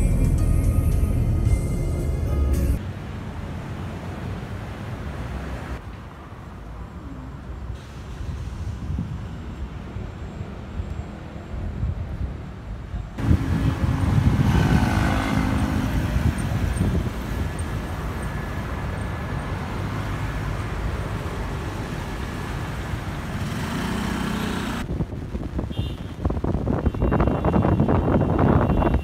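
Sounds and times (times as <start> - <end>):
cars passing: 0.0 - 25.6
low traffic rumble: 0.0 - 29.0
motorcycle passing: 13.2 - 17.2, 23.2 - 24.9.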